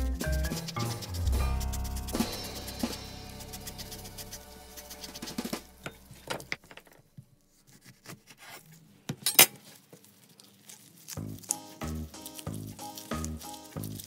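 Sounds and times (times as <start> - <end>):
lemon being zested: 0.0 - 6.1, 9.6 - 14.0
background music: 0.0 - 6.5, 11.2 - 14.0.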